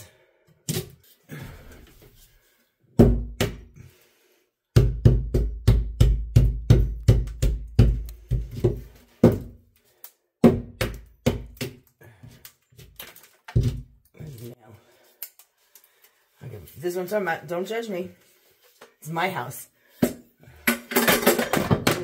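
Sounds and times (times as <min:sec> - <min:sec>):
hammer striking drywall: 0:04.8 - 0:09.6, 0:10.4 - 0:11.8.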